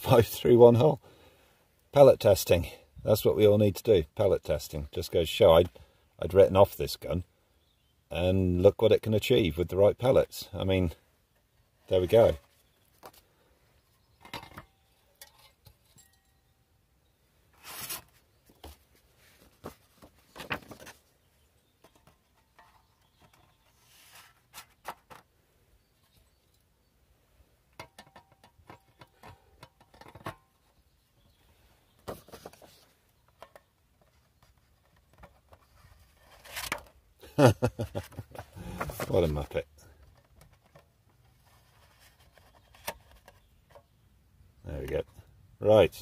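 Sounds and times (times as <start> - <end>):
paper cards rustling: 17.6 - 21.0, 32.0 - 32.9, 38.0 - 39.5.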